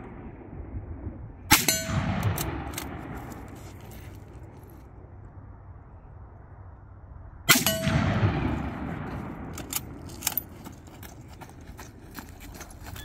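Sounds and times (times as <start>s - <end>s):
rifle shot: 1.5s - 3.5s, 7.5s - 10.1s.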